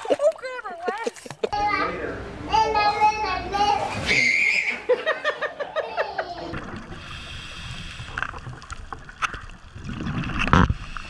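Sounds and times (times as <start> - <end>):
child laughing: 2.6 - 6.6
loud underwater rush: 6.3 - 11.0
muffled underwater hiss: 6.5 - 11.0
small underwater clicks: 7.9 - 11.0.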